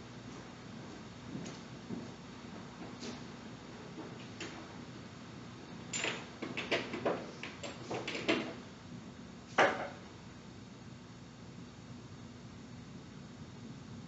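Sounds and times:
faint steady hum: 0.0s - 14.0s
knocks and clatters: 6.0s - 8.6s.

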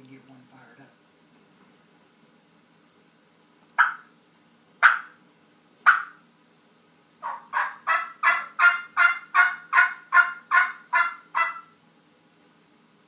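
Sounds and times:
turkey call yelps: 3.8s - 4.1s, 4.8s - 5.2s, 5.9s - 6.2s, 7.2s - 11.8s.

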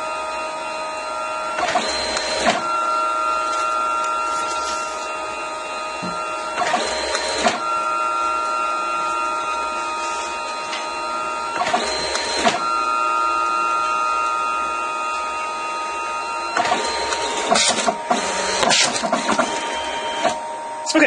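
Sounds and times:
printer motor whine: 0.0s - 21.0s
printer clicking and shuffling: 5.9s - 7.6s, 9.1s - 12.6s, 16.6s - 20.4s.

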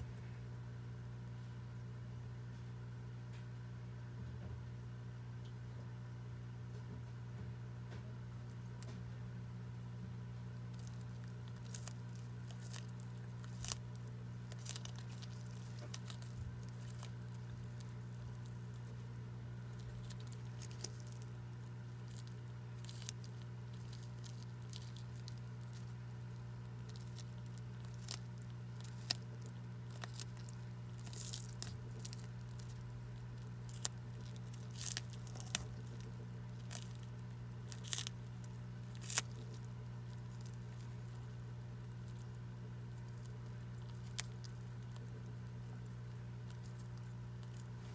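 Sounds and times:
steady low hum: 0.0s - 47.9s
crisp snaps and crunches: 10.5s - 47.9s
tortoise biting and tearing leaves: 10.6s - 47.9s.

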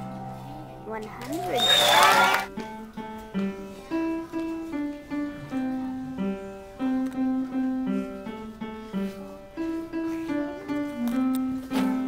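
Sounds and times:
solo piano melody: 2.4s - 12.0s.

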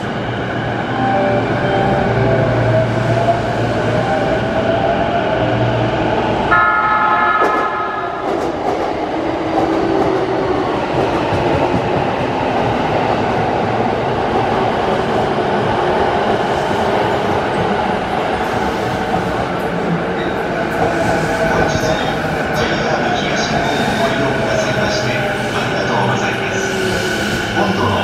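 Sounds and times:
electric train horn: 6.5s - 8.2s.

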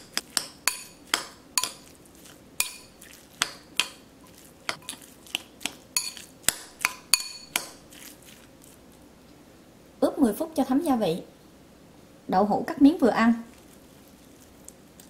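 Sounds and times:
metal spoon clinking ceramic bowl: 0.0s - 1.9s, 2.6s - 4.0s, 6.0s - 7.8s.

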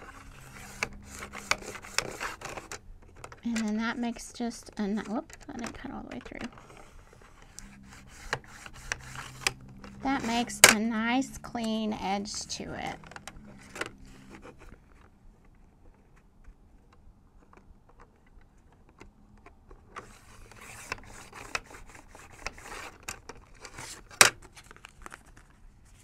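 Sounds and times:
paper trimmer cutting swish: 0.0s - 2.8s, 7.4s - 11.0s
paper and cardboard handled: 0.0s - 26.0s.

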